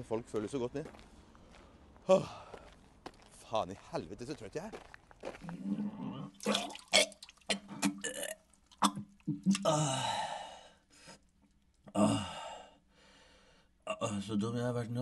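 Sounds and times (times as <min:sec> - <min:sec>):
man burping: 0:06.0 - 0:10.4, 0:11.8 - 0:12.6, 0:13.9 - 0:14.2.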